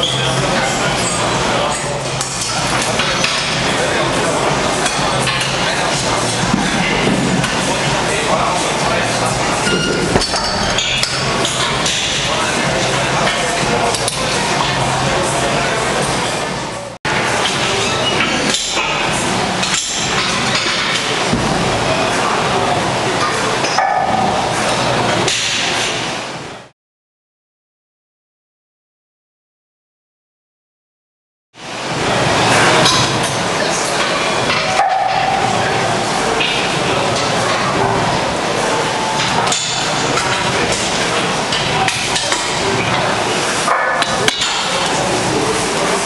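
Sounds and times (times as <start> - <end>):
busy weight room din: 0.0 - 26.7, 31.6 - 46.0
steady background noise: 0.0 - 26.7, 31.6 - 46.0
metal weights clanking: 6.3 - 14.1.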